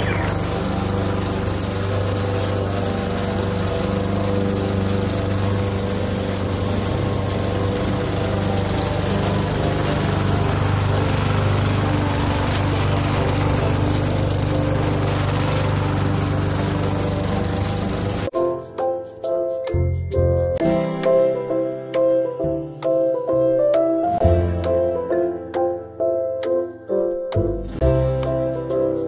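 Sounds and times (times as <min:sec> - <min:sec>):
lawn mower engine running: 0:00.0 - 0:18.3.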